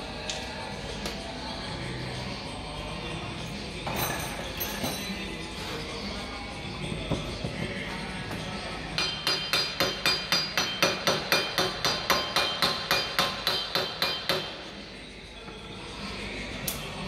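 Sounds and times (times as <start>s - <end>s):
hammer striking metal disc: 9.0s - 14.6s.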